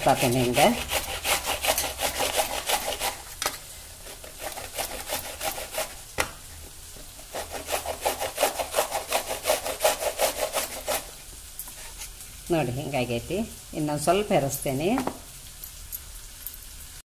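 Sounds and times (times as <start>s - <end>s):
mango rasping on grater: 0.0s - 6.1s, 7.2s - 11.2s.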